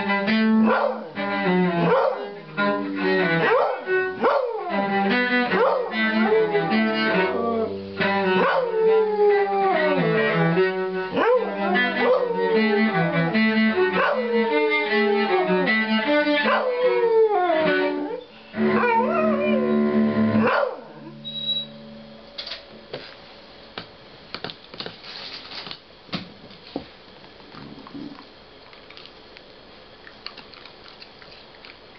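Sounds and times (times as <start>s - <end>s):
held cello notes: 0.0s - 22.2s
dog howling: 1.8s - 2.4s, 3.4s - 4.9s, 5.5s - 7.7s, 8.3s - 10.4s, 11.1s - 13.1s, 13.9s - 19.8s.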